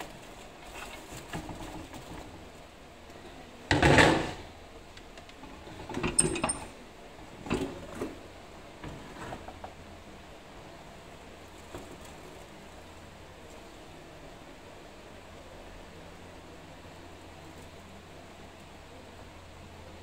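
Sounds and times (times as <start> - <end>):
plastic film rustling and crinkling: 0.0 - 2.6.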